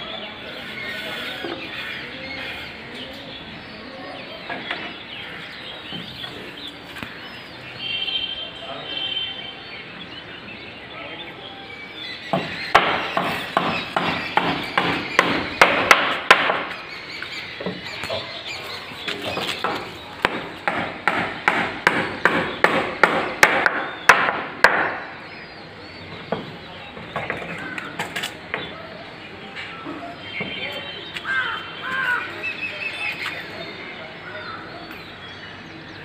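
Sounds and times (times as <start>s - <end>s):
rapid regular knocks: 12.3s - 16.8s, 19.3s - 25.1s.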